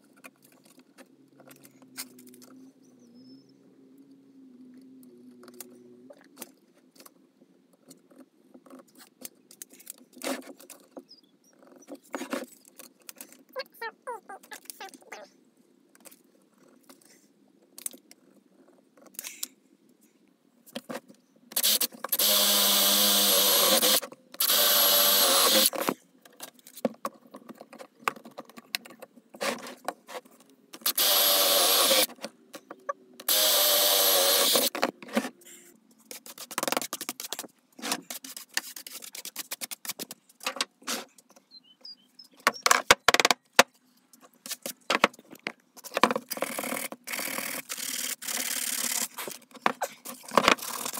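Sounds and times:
drill boring into wood: 21.6 - 25.8, 30.8 - 32.1, 33.3 - 34.7.

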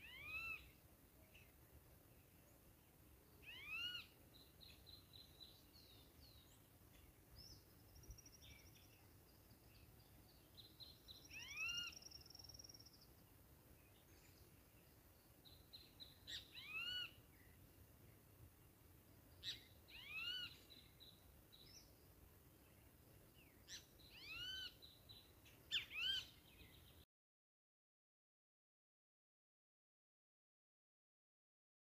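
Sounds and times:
small bird chirps: 0.0 - 1.6, 3.3 - 13.3, 13.9 - 17.5, 19.3 - 21.9, 23.5 - 27.0
bird calling: 3.4 - 4.1, 11.2 - 12.8, 16.3 - 17.2, 19.4 - 20.9, 23.7 - 24.8.

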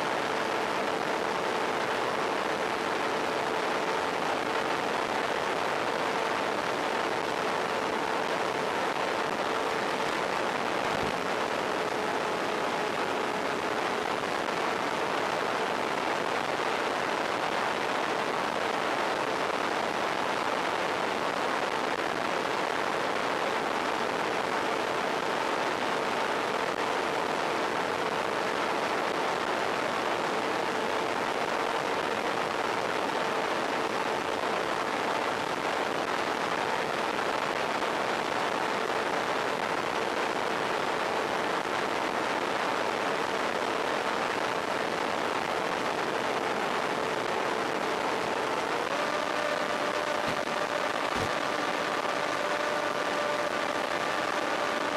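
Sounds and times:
steady rushing hiss: 0.0 - 54.9.

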